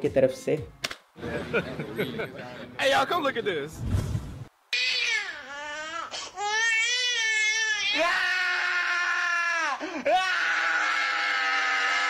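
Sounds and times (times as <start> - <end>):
baby crying: 4.7 - 12.0.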